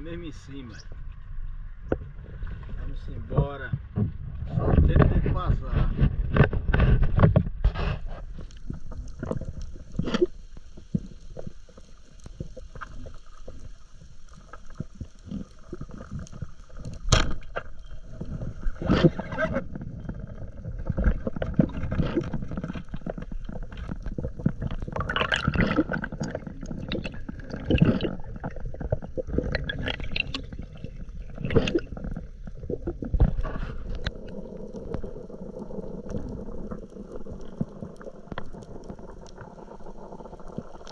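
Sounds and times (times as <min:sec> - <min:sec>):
muffled underwater water movement: 0:00.0 - 0:40.9
underwater clicks and knocks: 0:03.4 - 0:13.7, 0:14.3 - 0:35.2
water against boat hull: 0:14.4 - 0:35.1.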